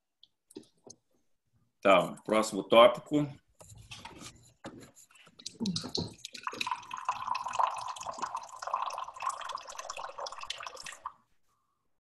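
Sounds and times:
water running into container: 5.4s - 11.2s.

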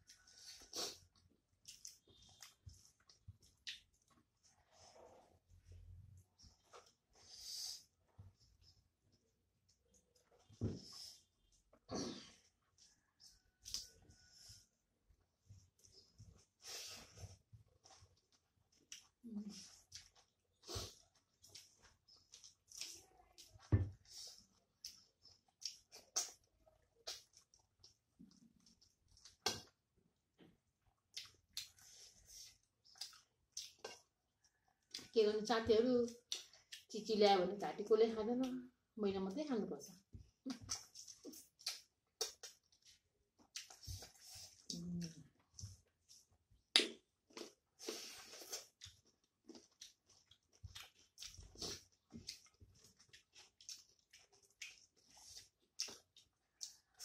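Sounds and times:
fingers squishing food on plates: 0.0s - 4.6s, 11.2s - 29.9s, 30.5s - 36.9s, 40.2s - 57.0s
chewing and lip smacks: 0.0s - 4.8s, 12.6s - 14.3s, 17.8s - 29.8s, 31.0s - 35.2s, 36.1s - 36.9s, 40.4s - 57.0s
chewing lip smacks: 40.5s - 45.3s, 48.3s - 57.0s.

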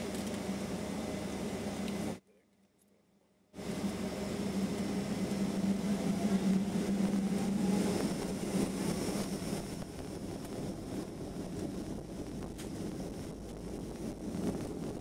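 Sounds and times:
jet engines humming: 0.0s - 2.2s, 3.6s - 15.0s.

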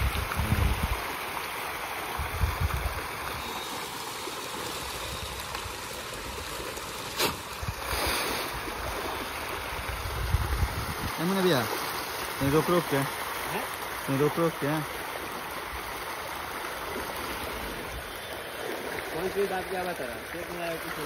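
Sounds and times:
fish splashing at water surface: 2.9s - 9.8s.

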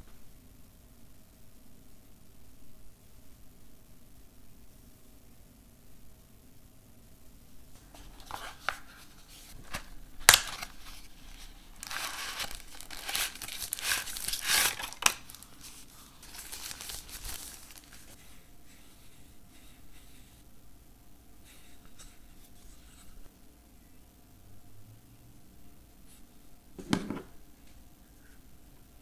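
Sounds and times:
plastic packaging crinkling: 7.8s - 18.2s.

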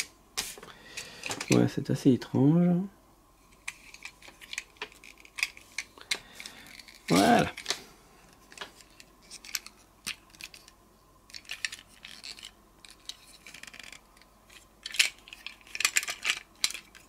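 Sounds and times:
toy robot parts clicking: 11.3s - 17.0s.

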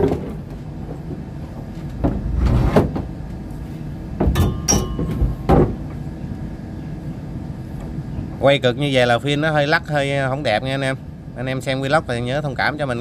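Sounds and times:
steady low rumble: 3.1s - 13.0s
knocks on wooden boat planks: 4.2s - 5.9s.

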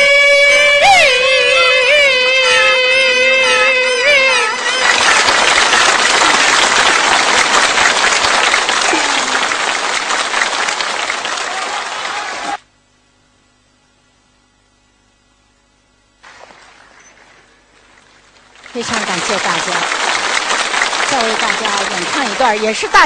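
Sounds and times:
audience applauding: 0.4s - 12.6s, 16.2s - 23.0s.

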